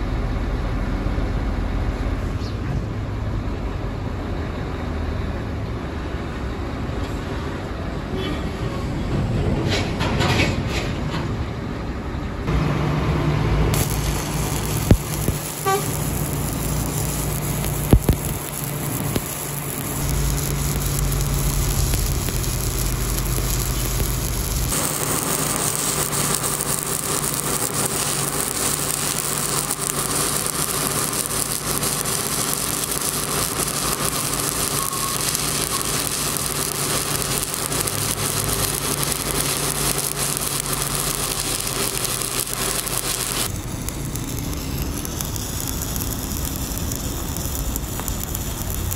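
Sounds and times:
welding arc crackling and sizzling: 0:12.4 - 0:48.9
sharp welding pops: 0:13.7 - 0:48.9.

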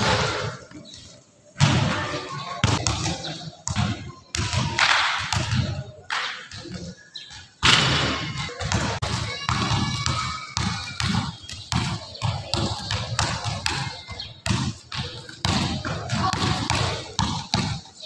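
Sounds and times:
basketball dribbling on gym floor: 0:08.7 - 0:17.8.

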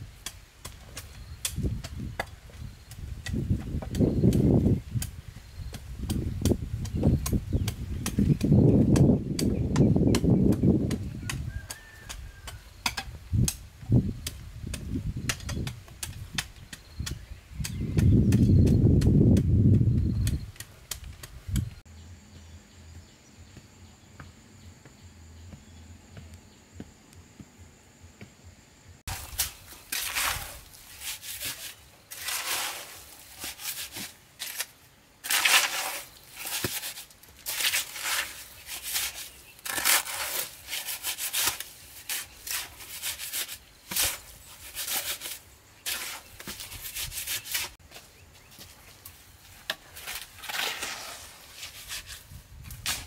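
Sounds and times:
trowel scraping wet cement: 0:29.1 - 0:47.8, 0:49.4 - 0:53.0.

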